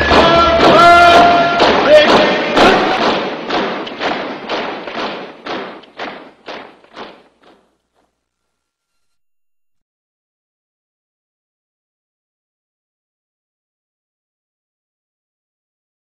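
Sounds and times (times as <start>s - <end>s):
heavy drum beat: 0.0s - 7.7s.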